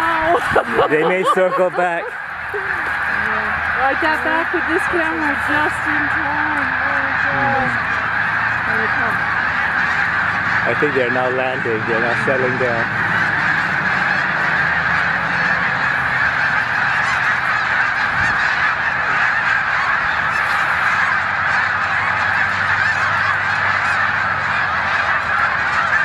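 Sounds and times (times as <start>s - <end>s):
flock of geese honking: 0.0s - 26.0s.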